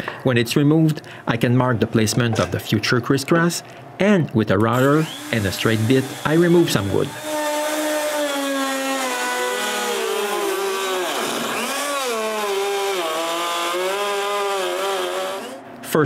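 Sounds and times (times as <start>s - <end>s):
router cutting wood: 4.7s - 15.6s.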